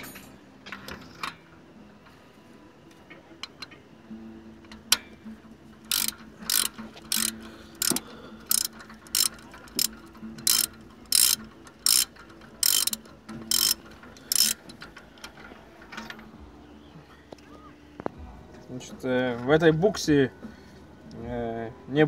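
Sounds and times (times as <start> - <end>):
ratchet wrench clicking: 5.8 - 14.8.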